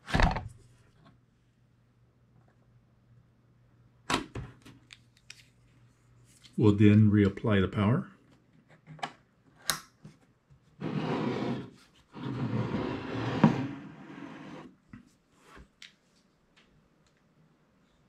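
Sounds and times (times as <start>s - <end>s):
case scraping on wooden desk: 10.8s - 14.7s.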